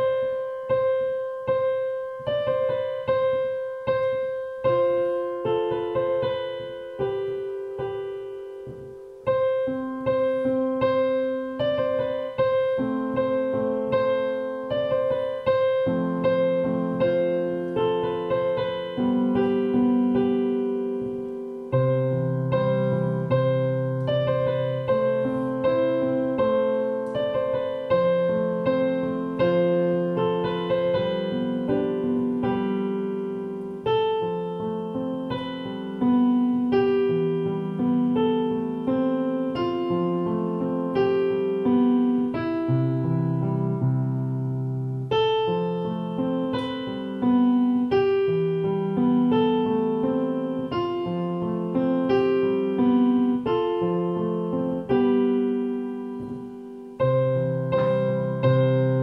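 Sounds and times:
digital piano melody: 0:00.0 - 0:59.0.

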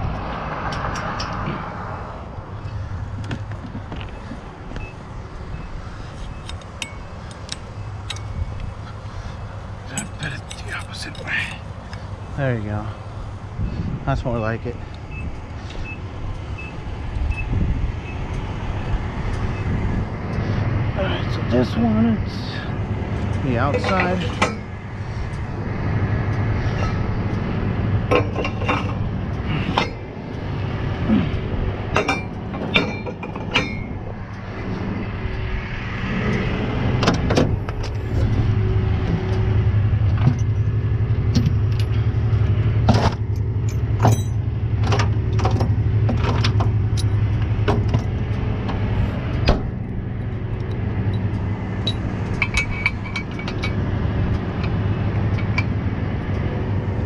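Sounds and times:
truck engine idling: 0:02.0 - 0:57.0
metal clanks and clinks: 0:06.3 - 0:09.0, 0:09.8 - 0:12.0, 0:23.5 - 0:24.8, 0:28.1 - 0:30.0, 0:31.9 - 0:34.2, 0:40.1 - 0:42.1, 0:42.9 - 0:48.8, 0:49.4 - 0:53.8, 0:54.6 - 0:55.8.

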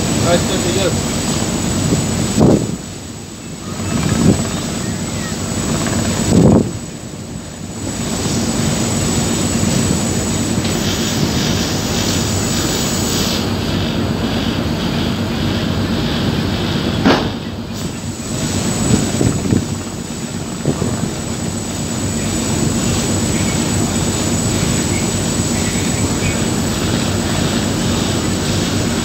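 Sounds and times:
boat engine drone: 0:00.0 - 0:29.0
wind on microphone: 0:01.8 - 0:03.0, 0:03.6 - 0:07.0, 0:18.6 - 0:21.6
brief bump: 0:17.0 - 0:17.4.

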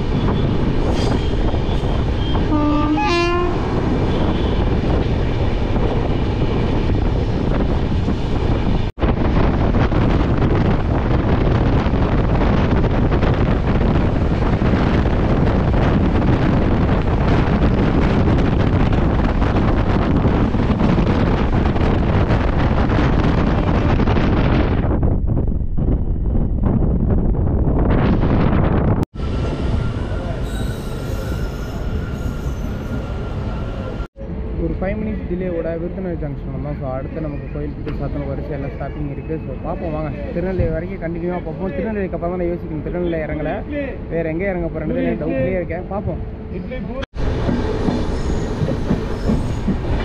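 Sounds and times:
train running at speed: 0:00.0 - 0:36.7, 0:45.0 - 0:50.0
train horn: 0:02.3 - 0:04.6.

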